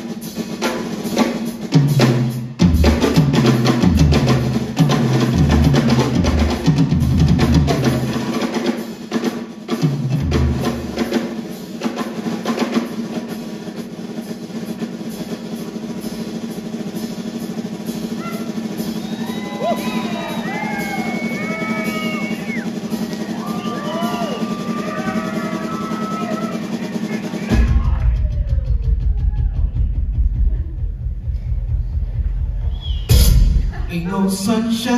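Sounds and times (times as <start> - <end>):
fast drum roll: 0.0 - 34.9.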